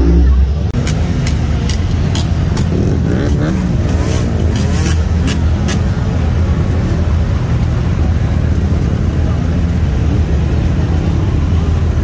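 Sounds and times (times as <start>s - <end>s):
motorcycle engine revving: 0.0s - 6.6s.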